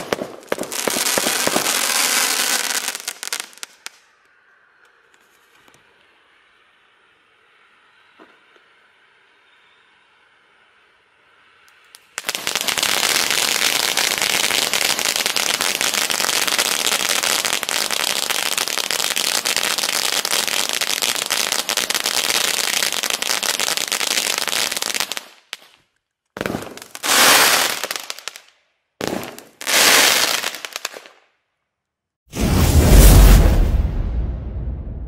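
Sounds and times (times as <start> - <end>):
crackling of firework sparks: 0.0 - 4.2, 11.6 - 31.2.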